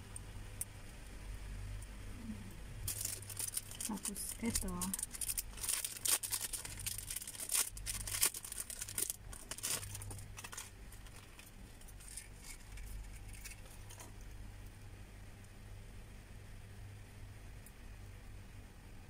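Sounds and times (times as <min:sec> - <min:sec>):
plastic packets crinkling: 0:02.8 - 0:14.2.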